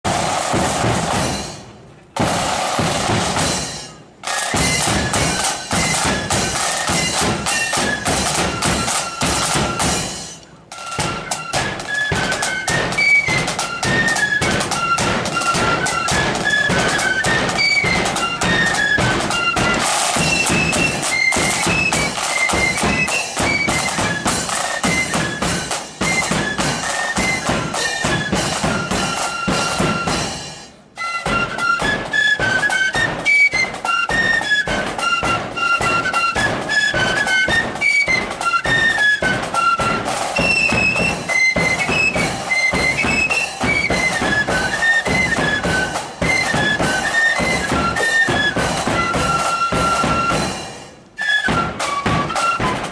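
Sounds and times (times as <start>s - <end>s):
side drums and bass drum: 0.0s - 52.9s
flute melody: 0.1s - 52.9s.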